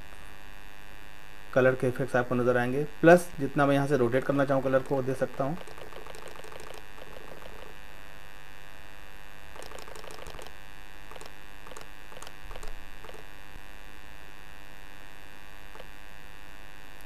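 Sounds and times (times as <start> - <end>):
electrical mains hum: 0.0 - 17.0
mouse clicks: 5.6 - 7.7, 9.6 - 10.5, 11.1 - 13.2.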